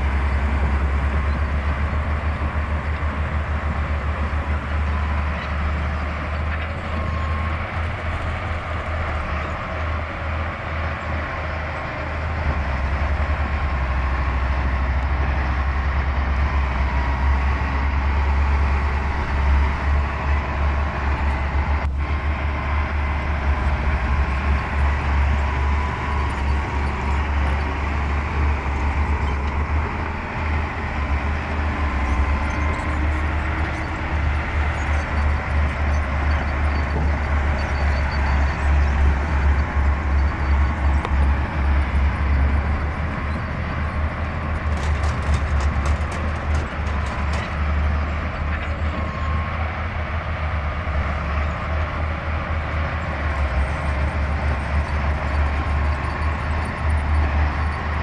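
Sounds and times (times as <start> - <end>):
bulldozer diesel engine rumbling: 0.0 - 58.0.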